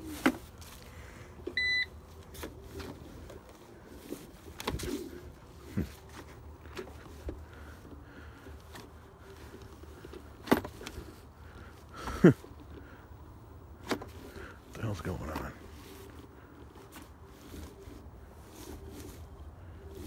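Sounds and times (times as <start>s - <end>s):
faint motor hum: 0.0s - 20.0s
short electronic beep: 1.6s - 1.9s.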